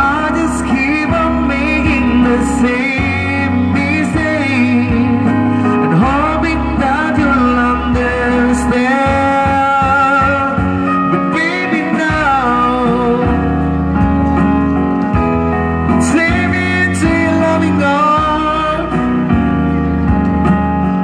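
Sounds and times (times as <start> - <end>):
keyboard-led pop ballad: 0.0 - 21.0.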